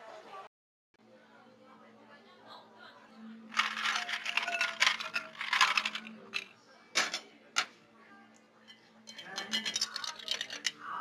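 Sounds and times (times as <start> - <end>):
ice cubes clattering into glass: 3.6 - 6.5, 9.1 - 10.8
glassware clinking: 9.1 - 10.8.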